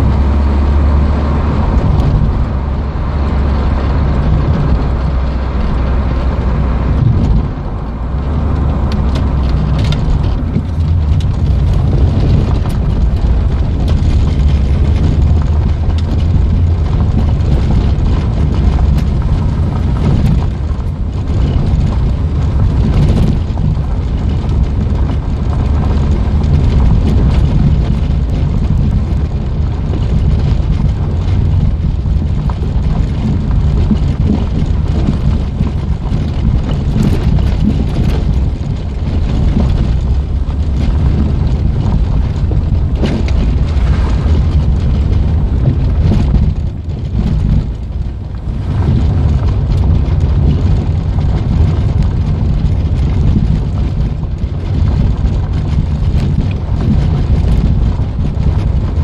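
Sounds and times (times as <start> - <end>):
car engine: 0.0 - 59.0
knocks and rattles: 0.0 - 59.0
tyre rumble on gravel: 6.7 - 59.0.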